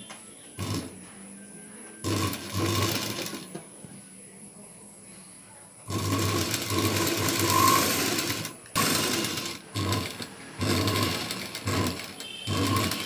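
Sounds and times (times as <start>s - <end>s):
sewing machine stitching: 0.6s - 0.9s, 2.0s - 3.5s, 5.9s - 13.0s.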